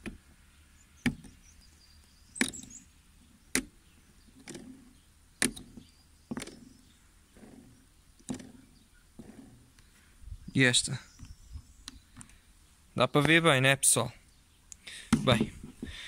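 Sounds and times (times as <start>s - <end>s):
pump rotor clicking: 3.5s - 9.9s.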